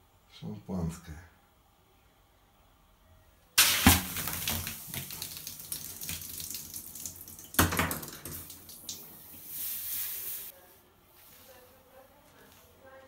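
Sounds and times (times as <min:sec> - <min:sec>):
liquid splashing into bathtub: 0:03.6 - 0:09.5.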